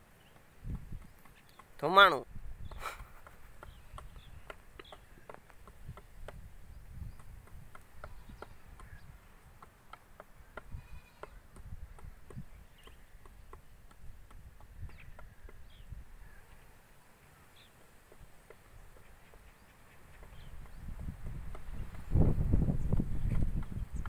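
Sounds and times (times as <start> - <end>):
scattered ticks and chirps: 0.0 - 2.0, 2.6 - 16.7, 17.5 - 24.0
wind rumbling on microphone: 0.6 - 1.3, 2.2 - 9.6, 10.4 - 16.6, 20.1 - 24.0.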